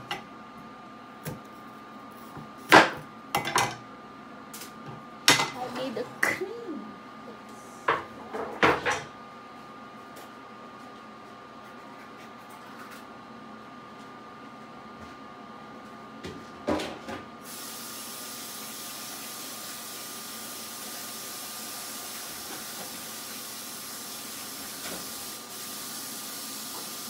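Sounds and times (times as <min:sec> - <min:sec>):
steady hiss: 0:17.5 - 0:27.0.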